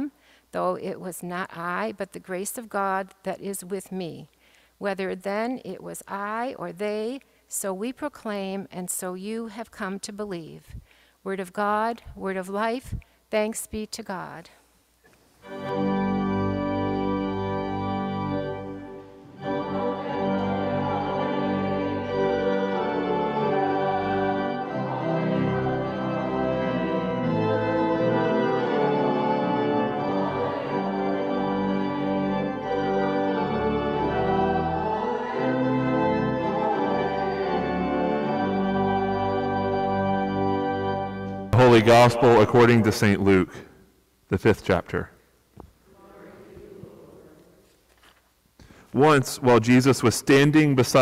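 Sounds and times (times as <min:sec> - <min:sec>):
church organ playing chords: 0:15.4 - 0:43.7.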